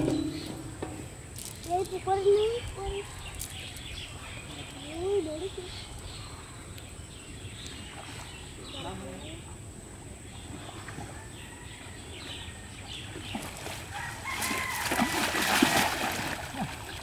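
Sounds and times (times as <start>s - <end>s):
water splashing: 13.1s - 17.0s
cast net landing on water: 13.4s - 16.9s
rooster crowing: 13.9s - 15.6s.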